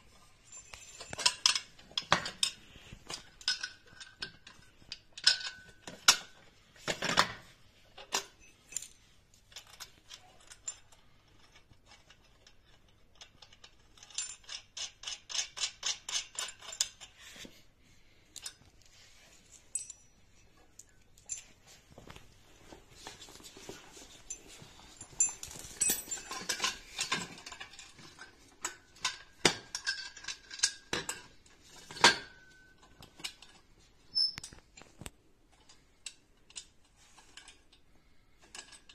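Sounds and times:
metal fittings clinking and rattling: 0.1s - 7.3s, 8.0s - 17.4s, 18.3s - 38.9s
ringing metal clink: 19.7s - 20.6s.

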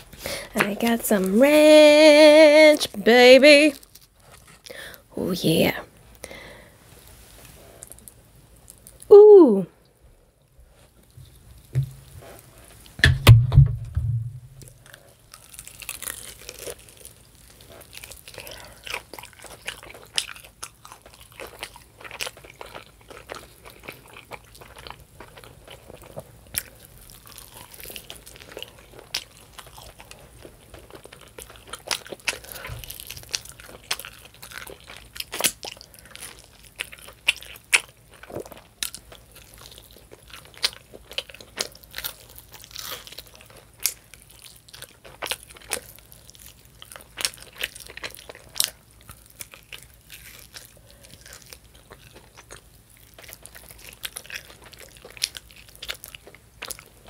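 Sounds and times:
dull low thump: 13.0s - 14.6s
biting and chewing: 14.6s - 57.0s.

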